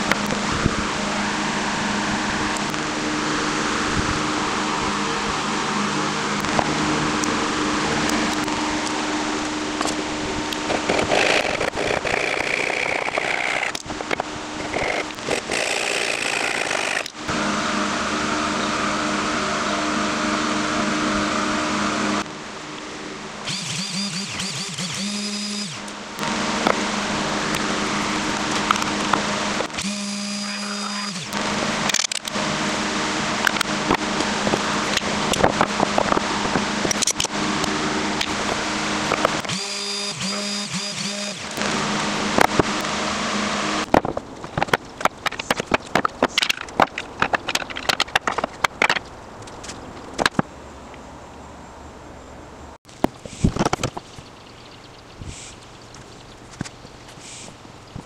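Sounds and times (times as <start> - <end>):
orbit sander whine: 0.0 - 48.9
steady hum: 0.0 - 58.0
hand saw cutting wood: 9.8 - 17.2, 23.4 - 32.6, 33.4 - 44.0.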